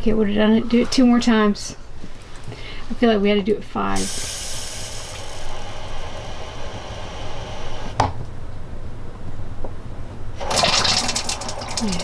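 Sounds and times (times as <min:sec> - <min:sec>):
toilet flushing water hiss: 0:04.0 - 0:08.0, 0:10.4 - 0:12.0.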